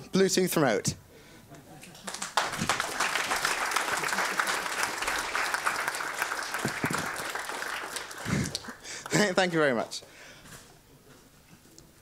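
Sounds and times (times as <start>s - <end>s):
audience applauding: 2.0s - 9.6s.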